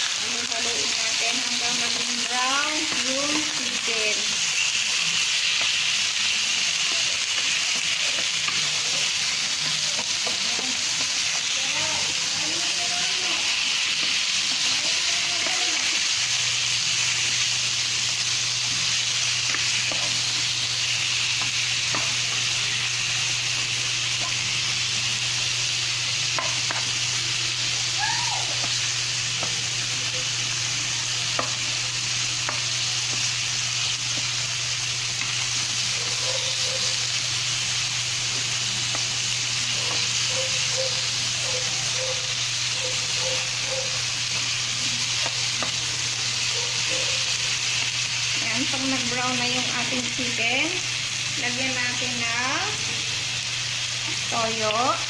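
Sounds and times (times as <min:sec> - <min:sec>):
chicken sizzling in oil: 0:00.0 - 0:55.0
spatula scraping and tapping pan: 0:19.5 - 0:20.2, 0:32.4 - 0:33.2.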